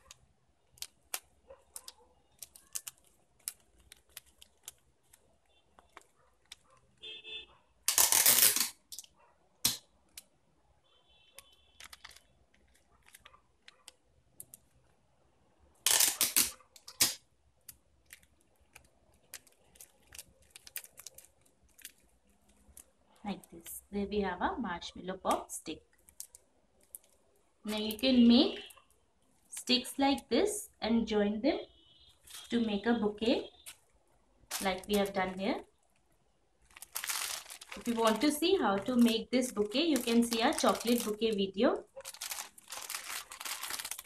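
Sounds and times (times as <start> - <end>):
cellophane crinkling: 0.0 - 7.1, 11.4 - 15.0, 15.9 - 23.8, 25.9 - 28.8, 34.5 - 44.0.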